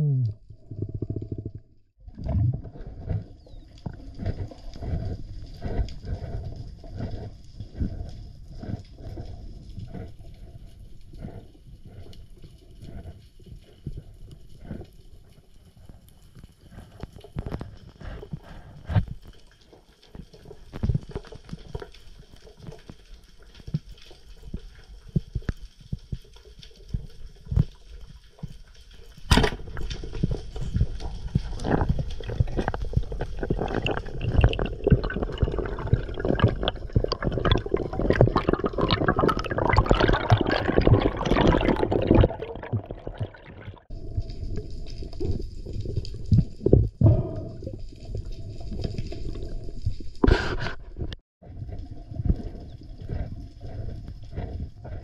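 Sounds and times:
underwater rattling and sloshing: 0.4 - 55.0
speargun shot crack underwater: 29.3 - 29.8.

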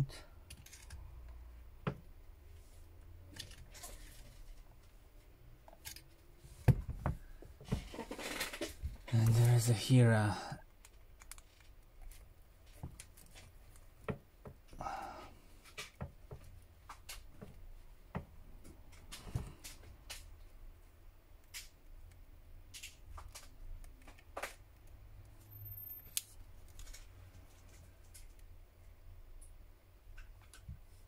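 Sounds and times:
plastic pick clicking and scraping: 10.7 - 13.8.

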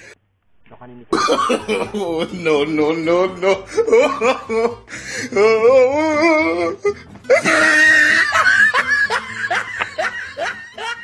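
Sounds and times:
exaggerated laughter: 1.1 - 11.0.

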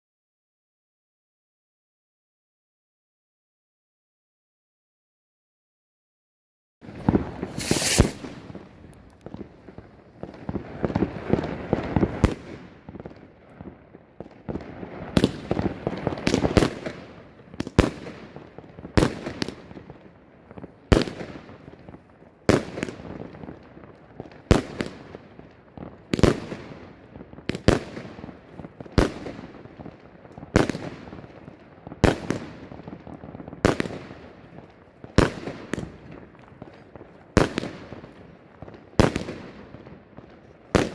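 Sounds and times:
firework bangs: 6.8 - 13.3, 14.1 - 23.7, 24.3 - 40.9
firework shots hissing: 7.1 - 8.6.

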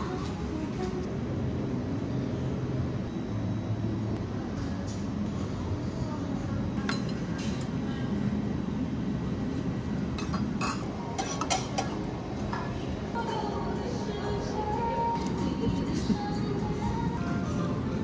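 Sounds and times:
low background hum: 0.0 - 18.0
cutlery and dishes clinking: 10.2 - 12.1.

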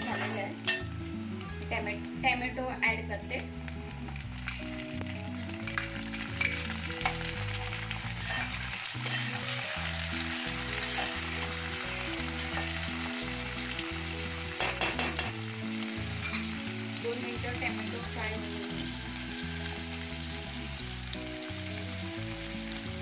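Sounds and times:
spoon scraping and clinking on pot: 0.0 - 0.9, 5.7 - 7.2, 8.2 - 9.5, 16.2 - 16.5
vegetables sizzling in hot oil: 0.0 - 23.0.

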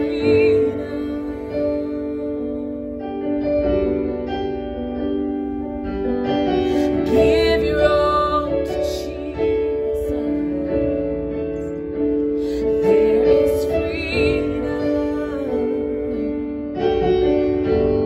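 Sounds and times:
woman singing worship song: 0.0 - 3.4, 6.6 - 11.8, 12.4 - 16.5.

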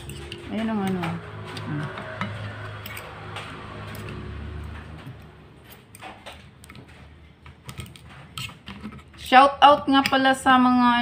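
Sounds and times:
fork and spoon scraping a plate: 0.0 - 0.6, 7.7 - 9.2.

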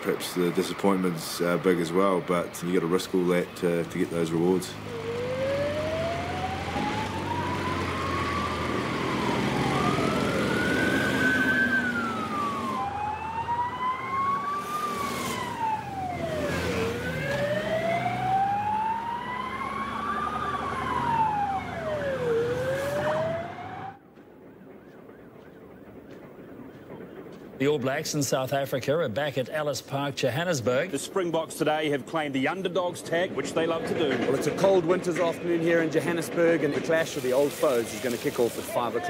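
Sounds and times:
sirens wailing: 0.0 - 28.2
road noise: 0.0 - 39.0
higher siren: 4.8 - 27.6.

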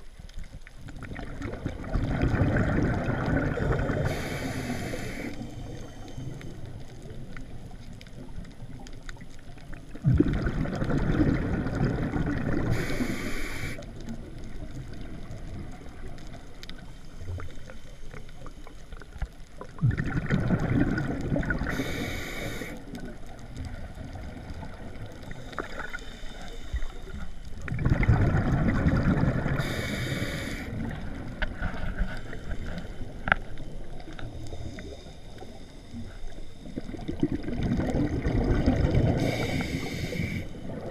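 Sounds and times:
diver bubbling exhalations: 1.1 - 4.1, 10.0 - 12.9
regulator hiss: 3.9 - 6.8, 12.7 - 14.0, 21.7 - 23.0, 25.2 - 27.5, 29.5 - 31.0, 39.1 - 40.8.

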